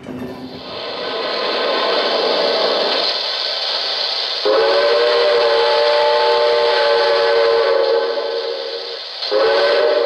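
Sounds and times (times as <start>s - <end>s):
chime steam whistle blasts: 4.4s - 10.0s.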